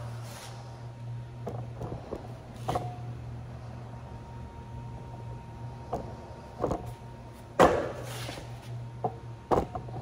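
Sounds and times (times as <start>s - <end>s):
steady low hum: 0.0s - 10.0s
sharp knocks and clunks: 7.6s - 8.0s.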